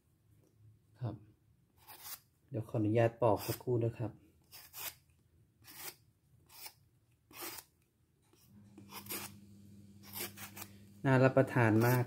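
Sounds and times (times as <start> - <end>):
vegetable peeler scraping fruit: 1.8 - 2.3, 3.3 - 3.7, 4.4 - 7.7, 8.3 - 12.0.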